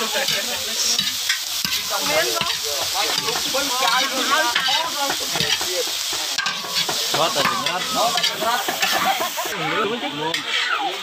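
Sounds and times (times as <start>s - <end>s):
insects sizzling in wok: 0.0s - 11.0s
metal spatula scraping pan: 0.1s - 10.9s.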